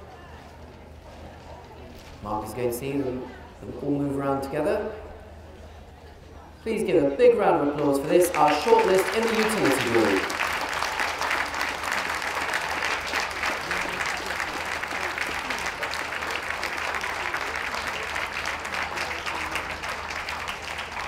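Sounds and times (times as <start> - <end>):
audience clapping: 7.8 - 21.0.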